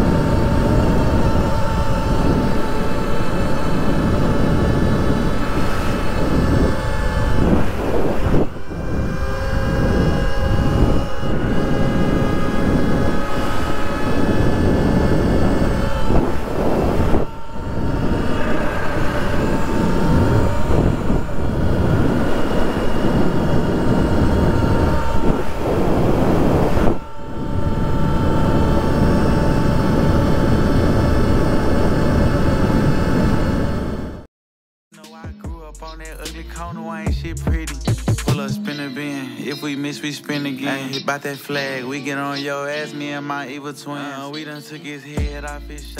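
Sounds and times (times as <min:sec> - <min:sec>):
electric motor whining: 0:00.0 - 0:34.3, 0:39.3 - 0:45.9
wind and tyre noise: 0:00.0 - 0:34.3.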